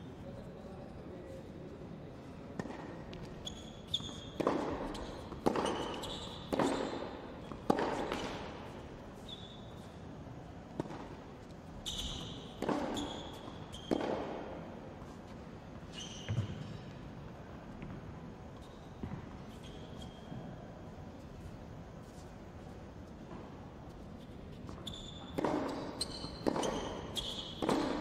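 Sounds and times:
tennis balls hit by rackets: 0:02.5 - 0:03.4, 0:04.0 - 0:09.0, 0:10.6 - 0:15.3, 0:25.3 - 0:28.0
balls bouncing on hard court: 0:02.6 - 0:08.8, 0:10.7 - 0:15.2, 0:16.0 - 0:17.1, 0:17.7 - 0:20.5, 0:24.7 - 0:28.0
shoes squeaking on court: 0:02.6 - 0:17.1, 0:17.8 - 0:22.5, 0:23.1 - 0:28.0.

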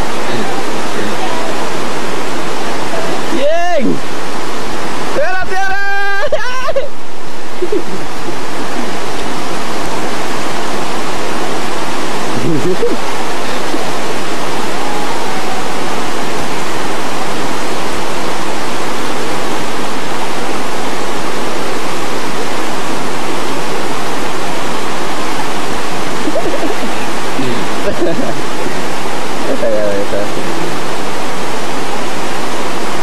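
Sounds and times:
river rushing over rocks: 0:00.0 - 0:33.0.

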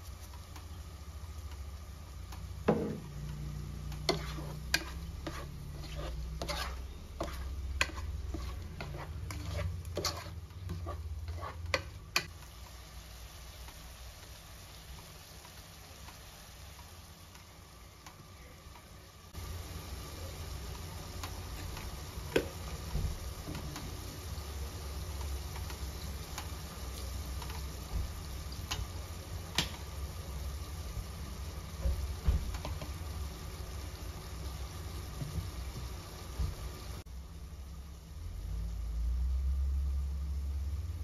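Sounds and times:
soft sizzle: 0:00.0 - 0:41.0
spoon scraping a pot: 0:03.9 - 0:12.3.

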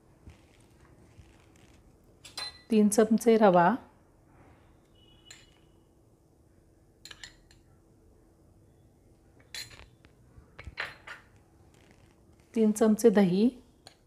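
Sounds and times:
metal spoon clinking on glass bowl: 0:02.2 - 0:02.7, 0:05.2 - 0:05.6, 0:07.0 - 0:07.7, 0:09.4 - 0:09.9.

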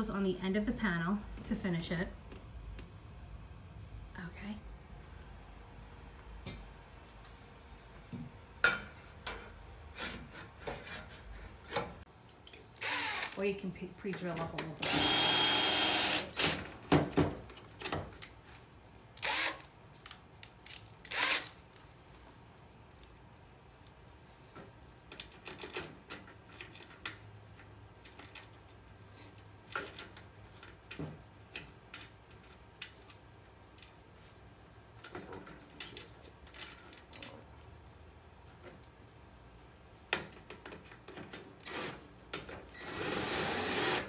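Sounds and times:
cordless drill bursts on metal: 0:12.8 - 0:13.4, 0:14.8 - 0:16.6, 0:19.2 - 0:19.7, 0:21.1 - 0:21.6, 0:41.6 - 0:42.0, 0:42.7 - 0:44.0.

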